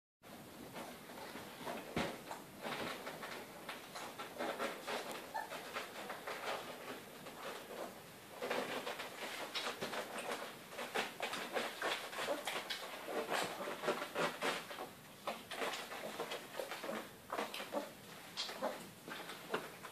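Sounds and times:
puppies squeaking and suckling: 4.8 - 6.6, 11.2 - 14.4, 15.6 - 19.7.

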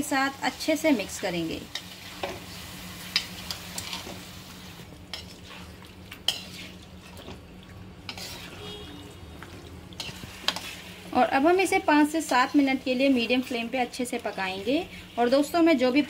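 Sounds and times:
frying sizzle: 0.0 - 16.0
wooden spatula scraping metal pan: 8.1 - 9.0.

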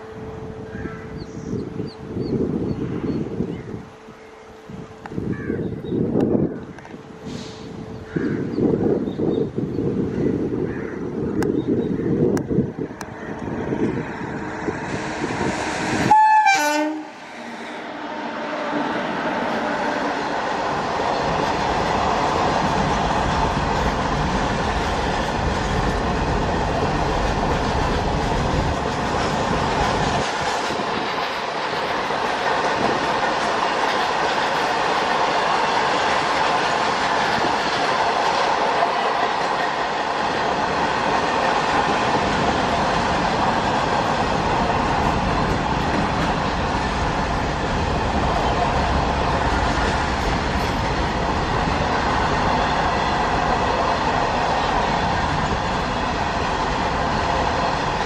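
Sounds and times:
train wheels running over rails: 17.2 - 58.0.

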